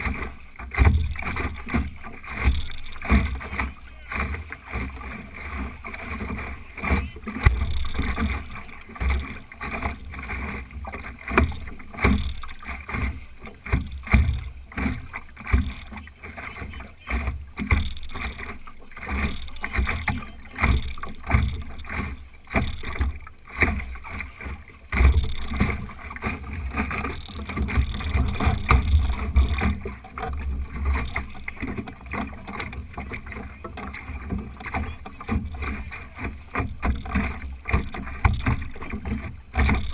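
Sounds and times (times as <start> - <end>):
water slapping against hull: 0.0 - 39.9
steady low rumble: 5.2 - 10.3, 25.0 - 29.6.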